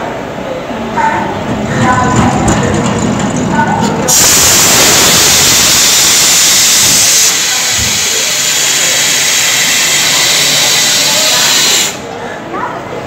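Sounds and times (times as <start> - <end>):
compressed air hissing: 4.1 - 12.1.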